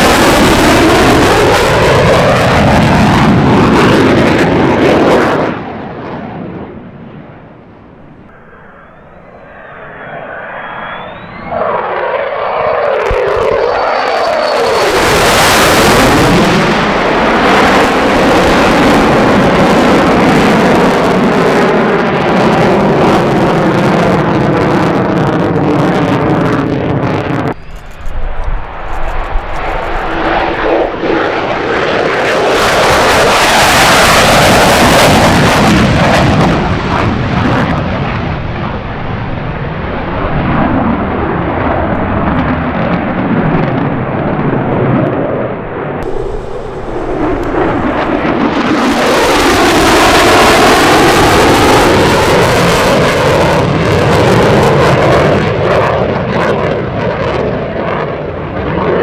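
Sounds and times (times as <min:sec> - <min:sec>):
fighter jet flyby: 0:00.0 - 0:59.0.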